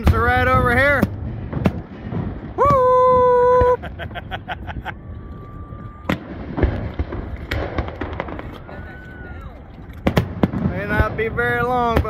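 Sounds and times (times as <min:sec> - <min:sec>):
firework bangs: 0:00.0 - 0:12.0
firework crackles: 0:00.0 - 0:12.0.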